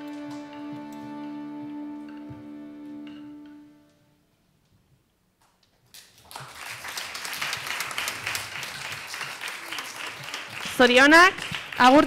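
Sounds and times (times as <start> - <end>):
audience applause: 6.0 - 12.0.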